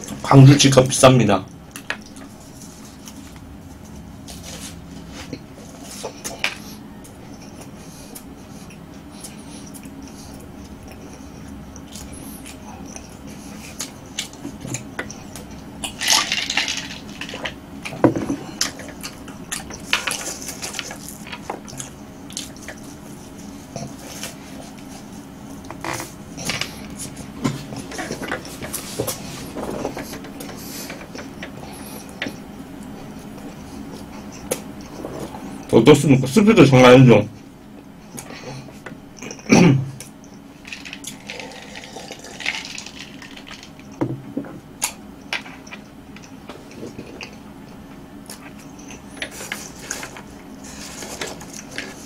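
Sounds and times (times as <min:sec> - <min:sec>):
chewing and crunching chips: 0:01.7 - 0:35.8, 0:39.2 - 0:44.0.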